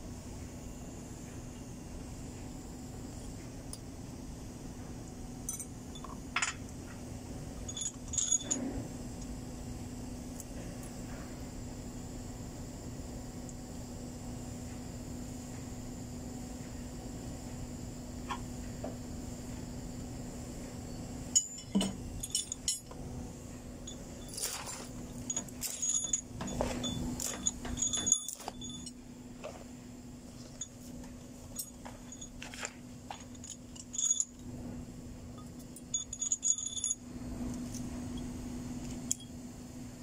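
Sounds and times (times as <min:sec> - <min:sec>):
steady low hum: 0:00.0 - 0:40.0
metal tools clanking on engine: 0:21.4 - 0:23.0, 0:23.9 - 0:29.6, 0:35.8 - 0:37.0.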